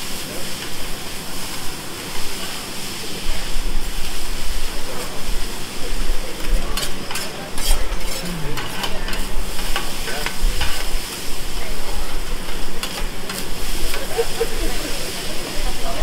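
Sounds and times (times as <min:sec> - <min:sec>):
rice sizzling on griddle: 0:00.0 - 0:16.0
metal spatulas scraping griddle: 0:06.4 - 0:11.2, 0:12.4 - 0:15.3.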